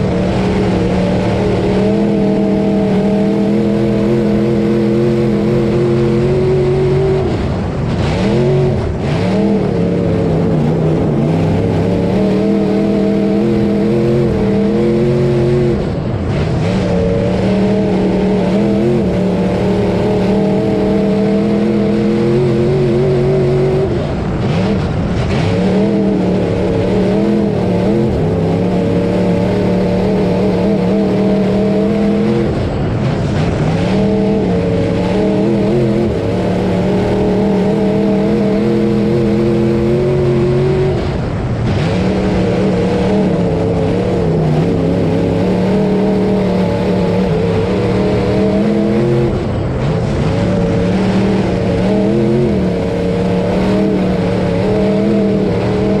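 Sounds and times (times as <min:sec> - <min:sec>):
race car engine: 0:00.0 - 0:56.0.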